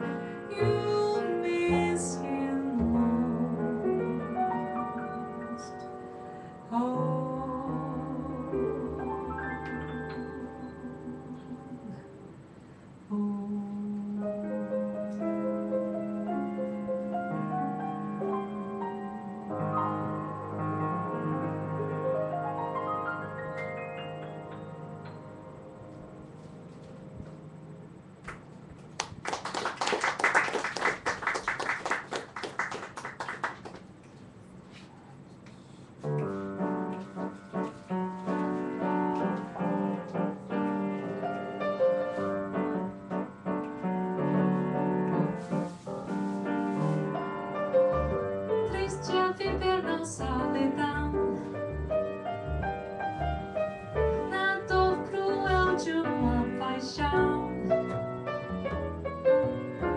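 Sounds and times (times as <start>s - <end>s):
piano chords and runs: 0.0s - 59.9s
woman singing: 0.4s - 6.0s, 6.7s - 12.1s, 13.1s - 14.7s, 48.7s - 51.4s, 54.3s - 57.7s
audience applause: 29.0s - 33.9s.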